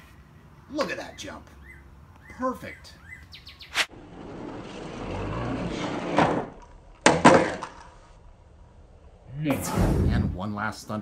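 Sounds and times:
toy truck rolling: 4.0 - 8.0.

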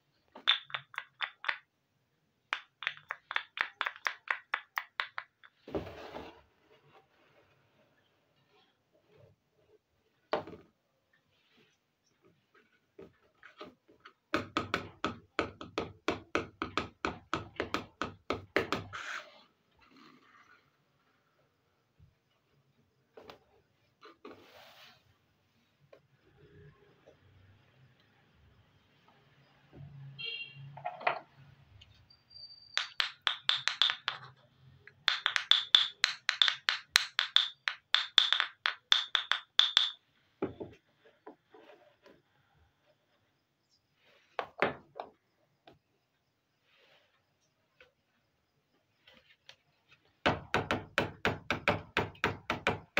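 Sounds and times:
toy pot knocking on tabletop: 0.4 - 1.7, 2.5 - 5.6, 32.8 - 40.6
short scrape: 24.2 - 25.3.

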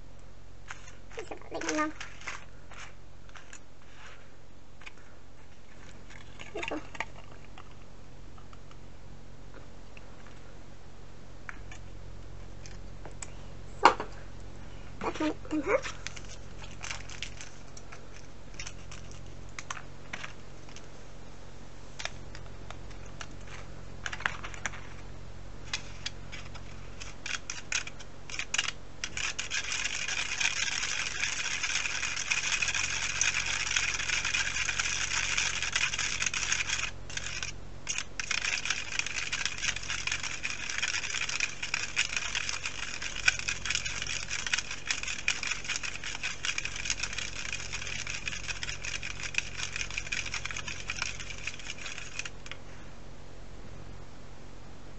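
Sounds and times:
fast scraping stirring in plastic tray: 0.7 - 4.3, 25.8 - 52.4
plastic trays and packets clicking: 25.7 - 52.6.

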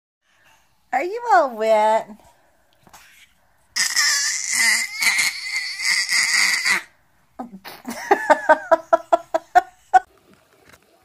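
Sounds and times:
baby squealing: 3.0 - 6.9.

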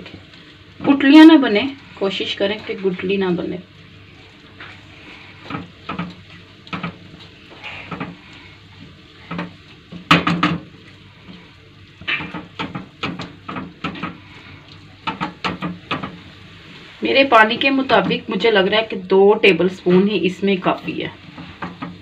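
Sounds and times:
spatula knocking and scraping pan: 4.6 - 11.4, 12.0 - 16.4, 17.3 - 18.6, 20.7 - 22.0.

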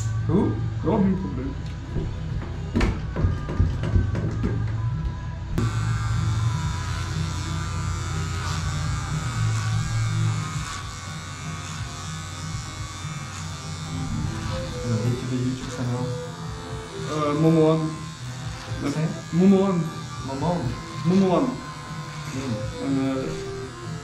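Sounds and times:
electric hair clipper buzzing: 5.6 - 24.0.

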